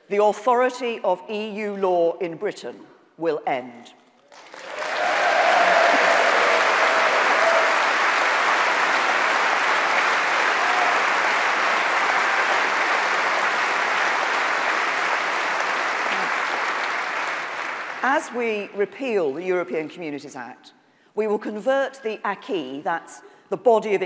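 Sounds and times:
audience applauding: 4.3 - 18.2.

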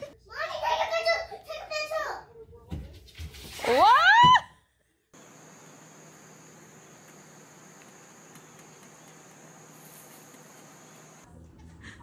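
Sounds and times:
crickets trilling: 5.2 - 11.2.

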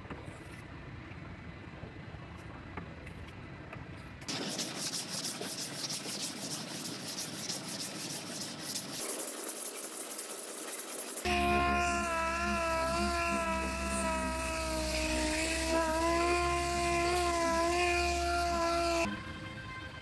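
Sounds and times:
hand sanding rasping rub: 4.3 - 19.1.

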